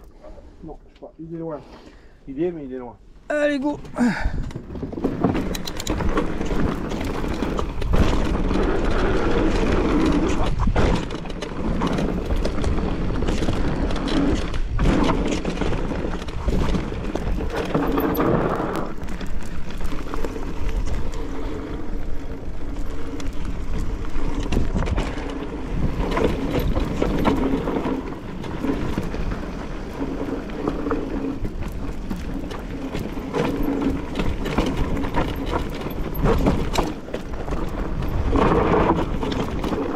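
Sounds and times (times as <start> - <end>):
bike clattering: 3.9 - 39.9
bike tyres crunching over gravel: 4.0 - 39.9
wind rumbling on microphone: 4.0 - 39.9.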